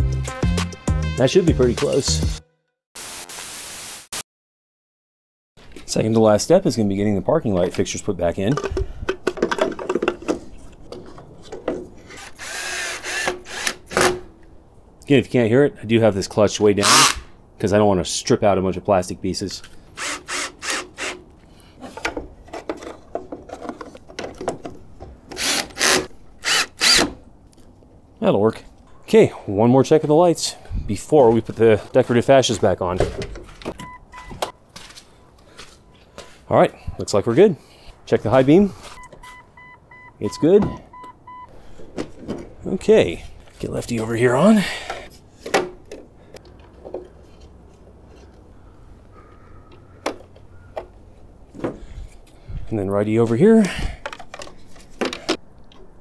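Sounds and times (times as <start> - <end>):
drill bursts: 12.2 - 14.2, 16.8 - 17.2, 20.0 - 21.2, 25.4 - 27.1
handling clicks and rubbing: 21.4 - 26.1
drill clutch ratcheting: 25.3 - 27.1.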